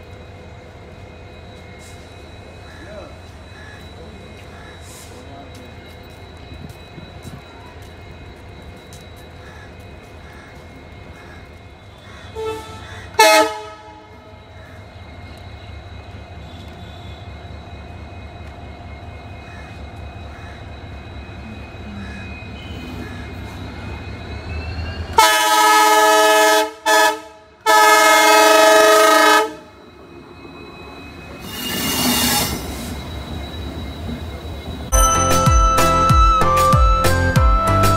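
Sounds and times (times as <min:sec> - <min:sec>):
diesel locomotive engine rumble: 0:00.0 - 0:37.9
locomotive air horn: 0:12.0 - 0:14.4, 0:25.2 - 0:29.7.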